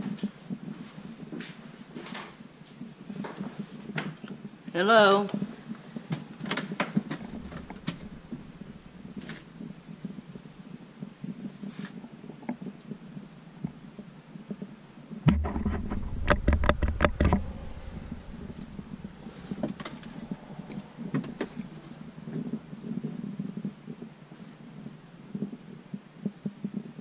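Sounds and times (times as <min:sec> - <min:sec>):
faint clicks and shuffling: 0:00.0 - 0:27.0
knocks and clatter: 0:06.1 - 0:10.4, 0:15.2 - 0:22.0
low steady hum: 0:06.3 - 0:11.3, 0:12.8 - 0:24.2
deep rumbling handling noise: 0:06.4 - 0:10.7, 0:15.2 - 0:22.7.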